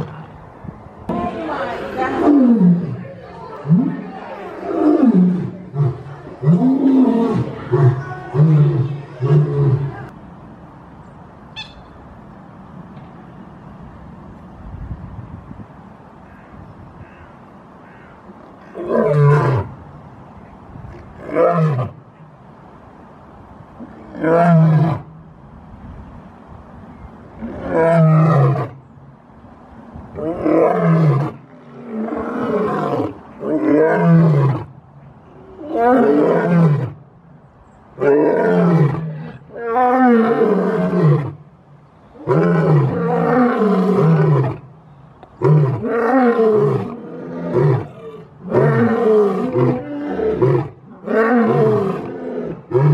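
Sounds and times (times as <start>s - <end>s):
lion roaring: 45.4s - 52.9s.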